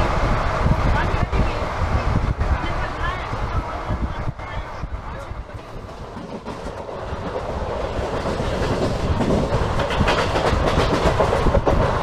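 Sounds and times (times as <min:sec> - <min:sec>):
train running on track: 0:00.0 - 0:12.0
wheels clacking over rail joints: 0:05.2 - 0:12.0.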